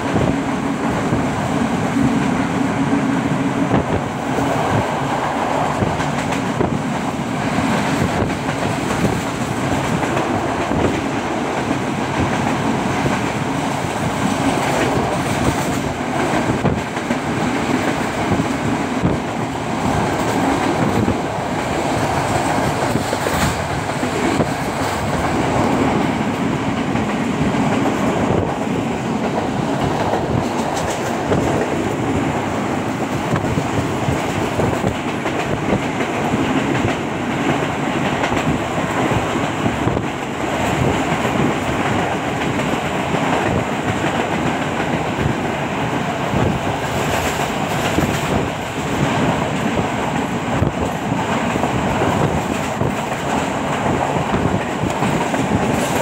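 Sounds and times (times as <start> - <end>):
train rattle and clatter: 0.0 - 56.0
train wheels on rails: 0.0 - 56.0.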